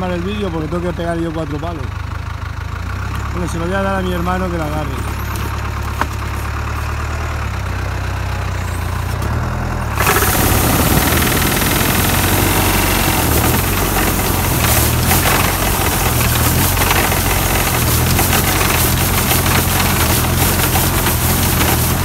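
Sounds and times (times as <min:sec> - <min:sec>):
tractor engine running: 0:00.0 - 0:22.0
tree shaker machine shaking: 0:10.0 - 0:22.0.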